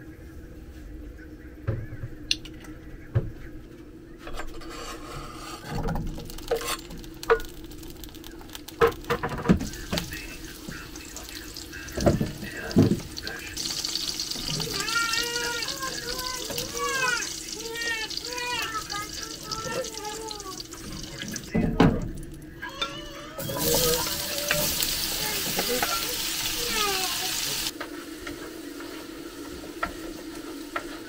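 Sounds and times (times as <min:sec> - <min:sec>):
tap water running: 0:05.8 - 0:22.5, 0:23.4 - 0:31.0.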